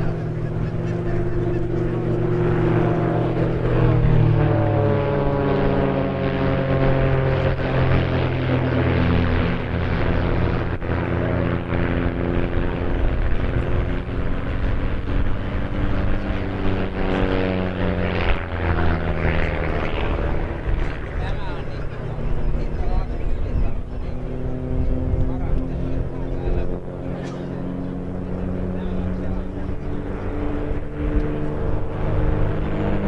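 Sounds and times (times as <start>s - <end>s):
biplane piston engines overhead: 0.0s - 33.0s.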